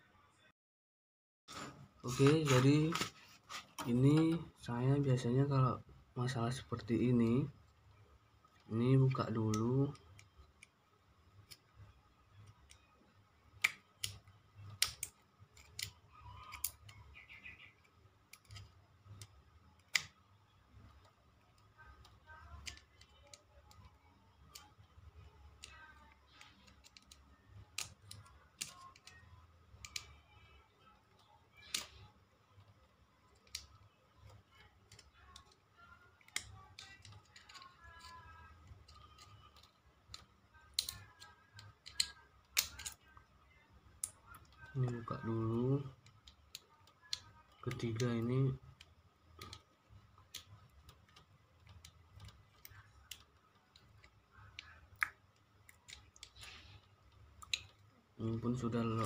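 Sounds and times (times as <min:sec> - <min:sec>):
screwdriver clicking on plastic: 0:21.6 - 0:30.2, 0:31.1 - 0:43.3.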